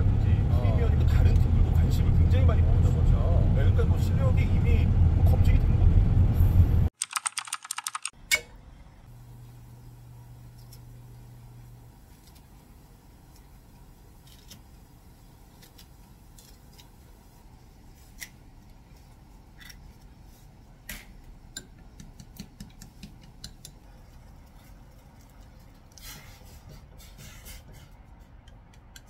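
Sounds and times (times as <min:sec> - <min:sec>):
eggs beaten with chopsticks: 0:21.5 - 0:24.2, 0:28.1 - 0:29.0.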